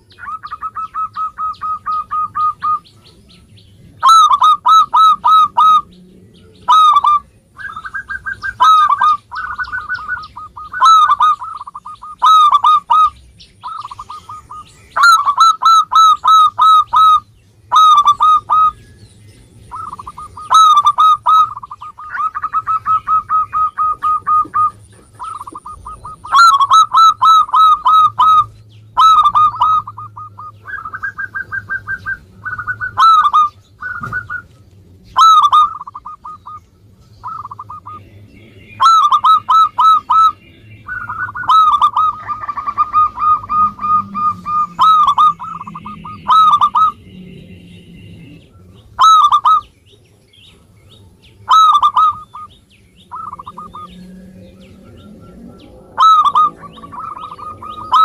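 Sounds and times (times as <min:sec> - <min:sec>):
dove cooing: 0:00.0 - 0:18.9, 0:19.6 - 0:36.6, 0:37.2 - 0:38.1, 0:38.7 - 0:49.7, 0:51.4 - 0:58.0.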